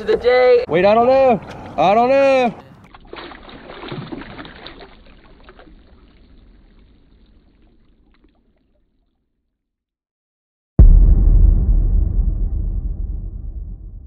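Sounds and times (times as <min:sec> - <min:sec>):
water splashing and dripping: 0:02.8 - 0:09.2.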